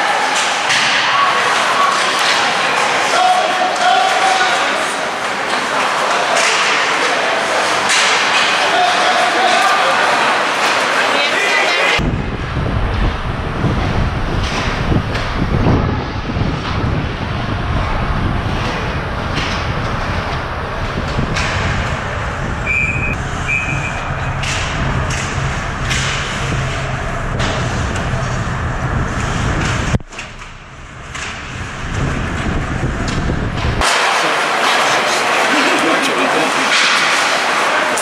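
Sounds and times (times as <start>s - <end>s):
skates sticks and puck knocking: 0.1s - 9.7s, 36.5s - 38.0s
steady rumbling noise: 12.0s - 35.6s
short high tones: 22.7s - 24.4s.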